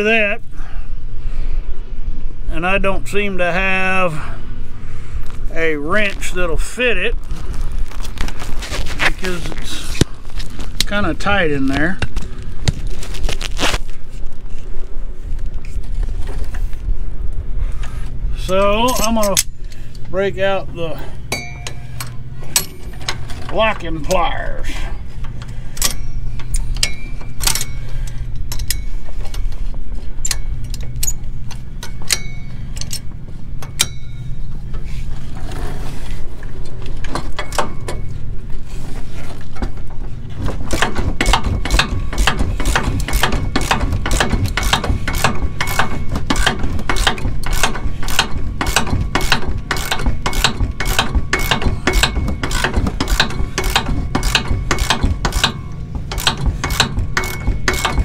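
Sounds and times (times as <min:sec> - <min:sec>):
tool clatter: 0:21.3 - 0:38.2, 0:39.0 - 0:58.0
ratchet wrench clicking: 0:40.8 - 0:58.0.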